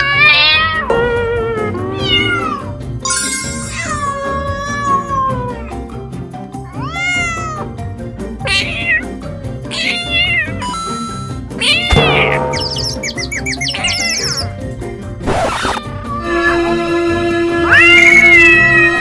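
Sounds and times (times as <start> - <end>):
cat meowing: 0.0 - 0.9, 1.9 - 2.7, 3.4 - 5.8, 6.6 - 7.8, 8.4 - 12.0, 17.7 - 19.0
background music: 0.0 - 19.0.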